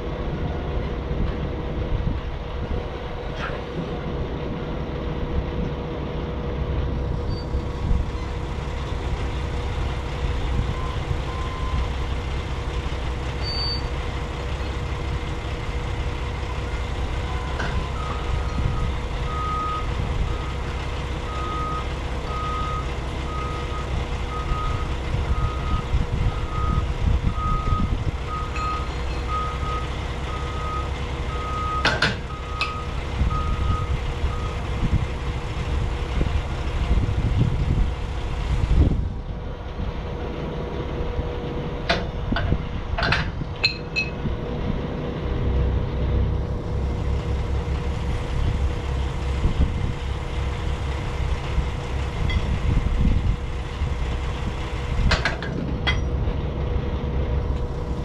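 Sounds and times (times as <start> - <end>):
engine hum: 0.0 - 58.0
vehicle backup alarm beeping: 10.7 - 12.2, 13.4 - 14.0, 17.2 - 34.7
sharp metallic clinks: 43.6 - 44.2.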